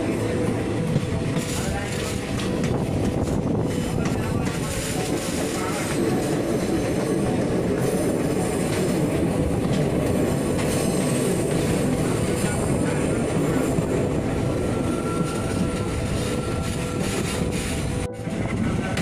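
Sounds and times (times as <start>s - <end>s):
train wheels rumbling on track: 0.0s - 19.0s
wind: 0.0s - 19.0s.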